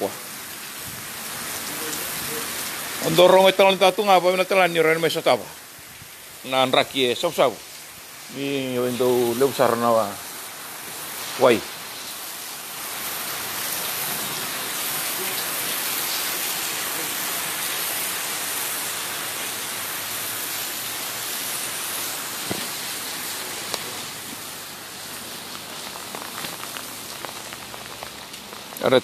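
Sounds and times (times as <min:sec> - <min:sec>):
heavy rain pouring: 0:00.0 - 0:29.0.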